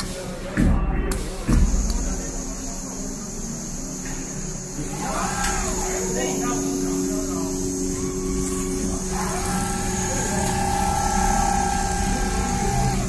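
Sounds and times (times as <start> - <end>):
high steady whine: 1.1 - 13.0
sewing machine running: 4.8 - 13.0.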